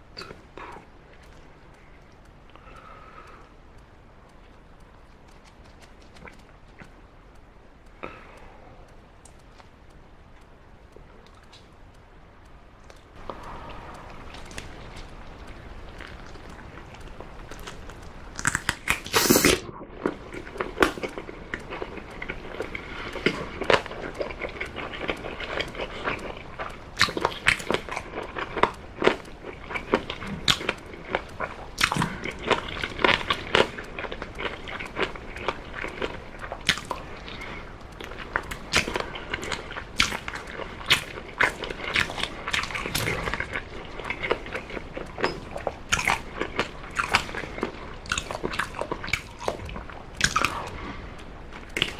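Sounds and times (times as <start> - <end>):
wet smacks and clicks: 0.0 - 51.9
chewing and biting chicken: 4.4 - 7.0, 12.9 - 51.9.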